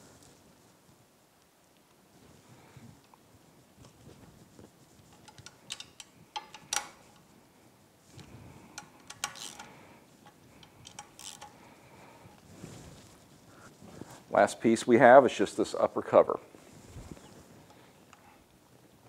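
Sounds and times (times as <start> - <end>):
hand ratchet clicking: 5.1 - 7.1, 8.7 - 11.6.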